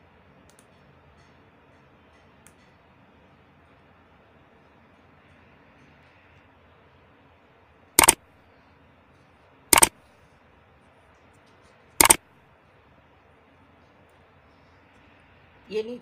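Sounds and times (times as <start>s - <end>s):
mouse double clicks: 12.0s - 12.2s.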